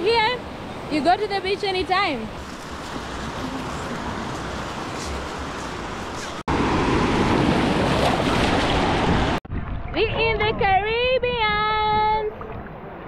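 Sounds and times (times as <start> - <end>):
surf on a sandy beach: 0.0 - 9.4
water splashing around wading legs: 2.4 - 6.4.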